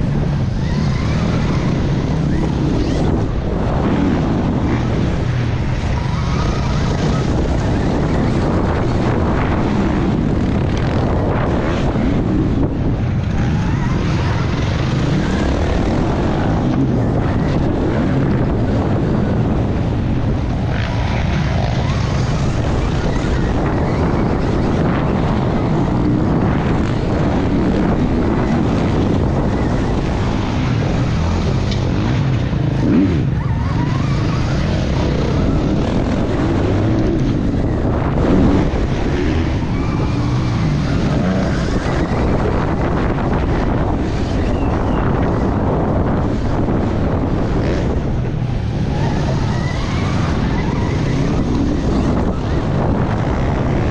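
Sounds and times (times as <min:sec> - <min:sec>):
wind rushing over microphone: 0:00.0 - 0:53.9.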